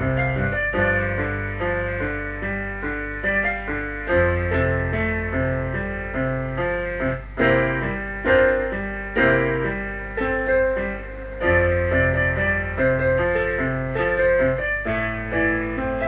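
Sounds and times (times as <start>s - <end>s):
electronic keyboard piano melody: 0.0s - 16.0s.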